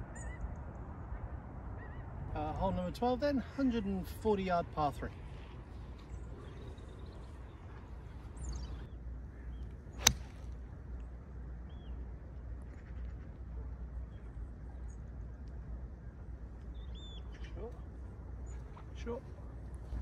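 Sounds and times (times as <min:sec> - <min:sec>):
golf club striking ball: 0:10.0 - 0:10.5
faint bird chirps: 0:16.7 - 0:17.8.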